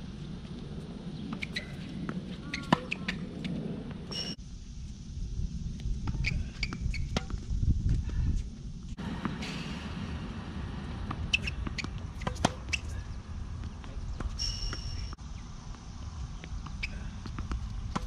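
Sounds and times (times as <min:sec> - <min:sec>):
low wind rumble: 0:00.0 - 0:18.0
sneakers squeaking: 0:01.1 - 0:04.4, 0:06.0 - 0:07.5, 0:11.0 - 0:18.0
tennis balls struck and bouncing: 0:01.3 - 0:04.4, 0:06.1 - 0:07.5, 0:09.0 - 0:15.2, 0:16.4 - 0:18.0.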